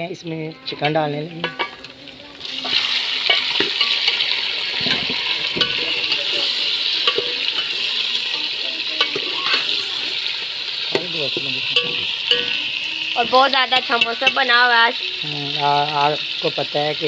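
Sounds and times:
chicken sizzling in a pot: 0.0s - 17.0s.

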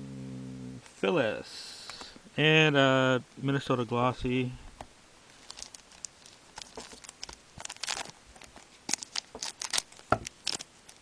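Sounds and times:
foil wrapper crackling: 5.3s - 11.0s.

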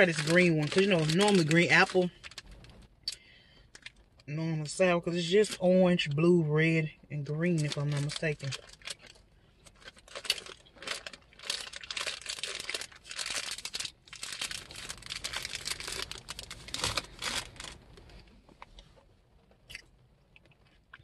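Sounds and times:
candy wrapper crinkling and tearing: 0.0s - 2.9s, 7.2s - 18.0s.

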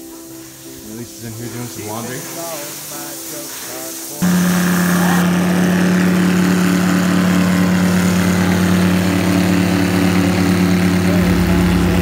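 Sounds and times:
airboat engine drone: 4.2s - 12.0s
deep low rumble: 10.9s - 12.0s.

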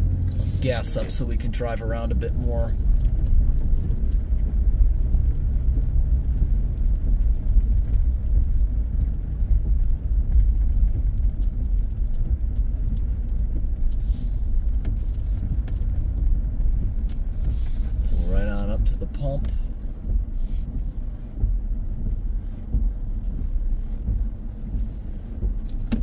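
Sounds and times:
truck engine rumbling: 0.0s - 26.0s
tyres on wet gravel: 17.1s - 21.1s.

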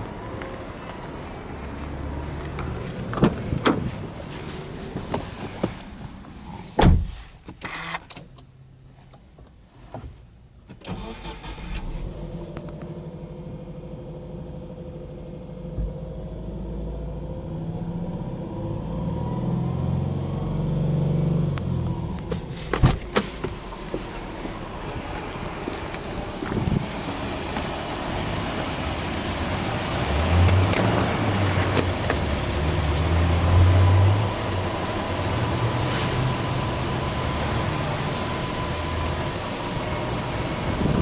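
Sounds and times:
car engine starting and idling: 0.0s - 41.0s
loud thump: 6.8s - 7.2s.

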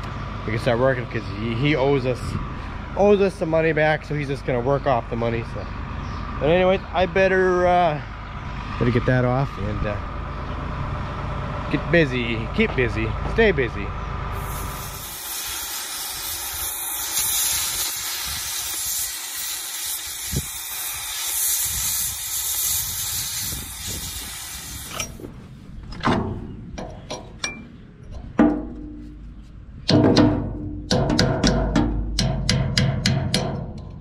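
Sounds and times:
cutting torch hissing: 14.3s - 25.2s
metal knocks: 25.9s - 34.0s.

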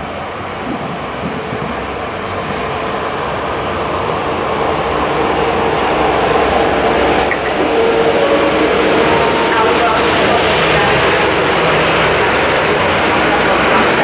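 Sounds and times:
locomotive hum: 0.0s - 14.0s
train rumble: 0.0s - 14.0s.

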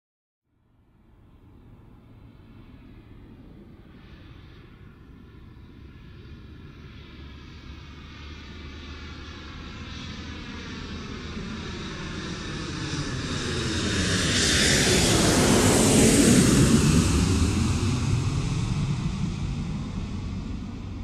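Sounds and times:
airliner engine noise: 1.1s - 21.0s
sweeping whoosh overhead: 10.9s - 21.0s.

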